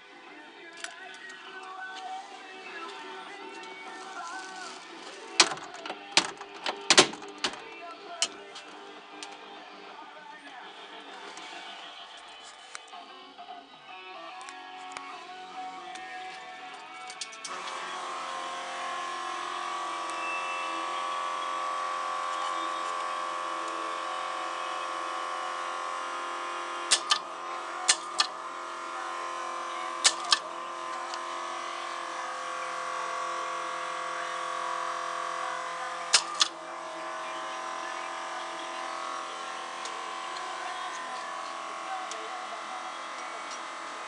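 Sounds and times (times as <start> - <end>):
steady electric hum: 17.4 - 44.0
solenoid clicking: 26.9 - 27.2, 27.9 - 28.3, 30.0 - 30.4, 36.1 - 36.5.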